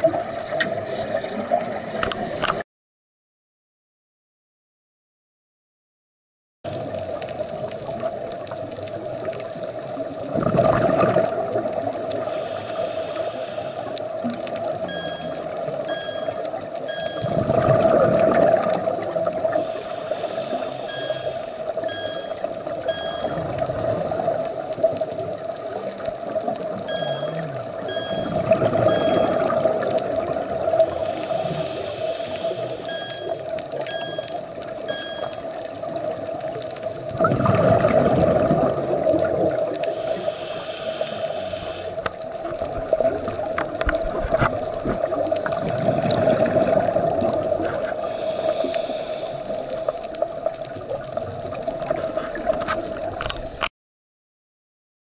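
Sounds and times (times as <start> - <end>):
underwater hum: 0.0 - 2.6, 6.7 - 53.7
exhaled air bubbling: 6.7 - 53.7
electronic alarm beeps: 14.8 - 17.4, 20.8 - 23.5, 26.9 - 29.5, 32.9 - 35.5.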